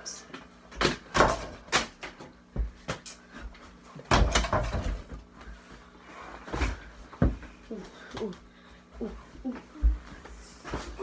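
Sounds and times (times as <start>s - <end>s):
ball knocking hoop and door: 4.1s - 5.1s.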